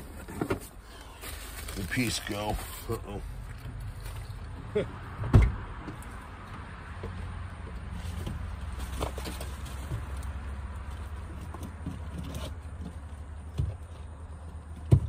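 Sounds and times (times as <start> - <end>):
rustling through bag of parts: 0.0 - 4.5.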